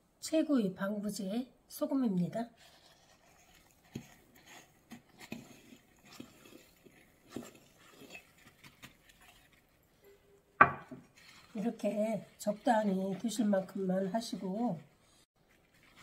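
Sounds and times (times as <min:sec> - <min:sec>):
knock on glass jar: 0:10.6 - 0:11.0.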